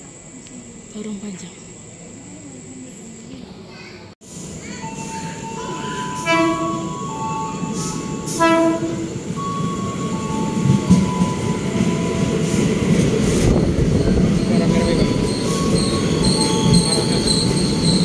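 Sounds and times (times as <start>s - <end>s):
train wheels rumbling on rails: 4.4s - 18.0s
train horn blasts: 6.1s - 7.0s, 8.3s - 9.2s.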